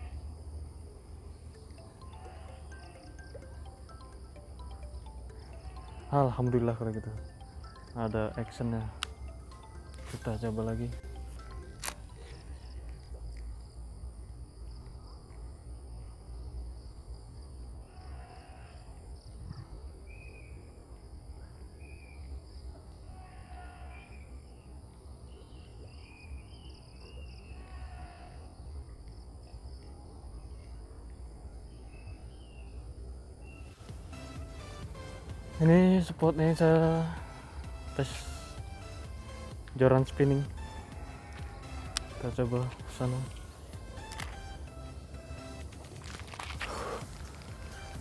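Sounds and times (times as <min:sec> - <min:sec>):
insects droning: 0:00.0 - 0:48.0
short chirping calls: 0:00.8 - 0:13.0.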